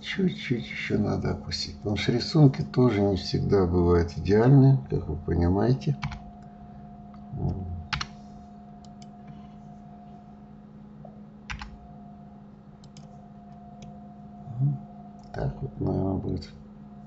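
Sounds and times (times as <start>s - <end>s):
steady hum: 0.0s - 17.0s
keyboard and mouse clicks: 7.1s - 8.1s, 8.8s - 9.4s, 11.5s - 11.8s, 12.8s - 13.2s.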